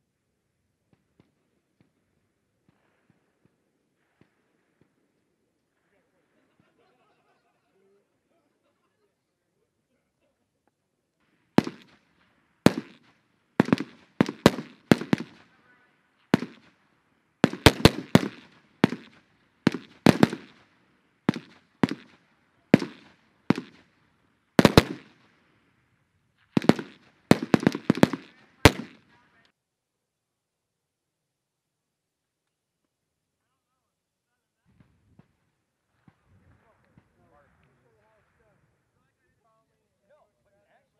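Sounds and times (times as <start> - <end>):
rifle shots echoing: 11.3 - 16.8, 17.4 - 24.0, 24.6 - 25.4, 26.5 - 29.1.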